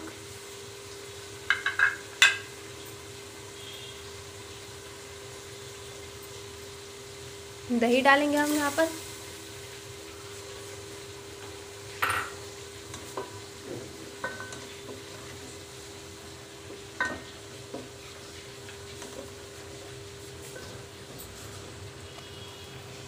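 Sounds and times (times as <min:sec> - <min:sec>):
pot ringing: 0:01.5 - 0:02.5, 0:12.0 - 0:12.4.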